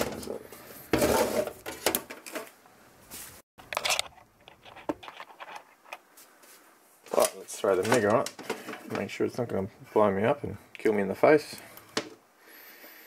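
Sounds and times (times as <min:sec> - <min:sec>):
tools clattering on a workbench: 0:07.1 - 0:09.1.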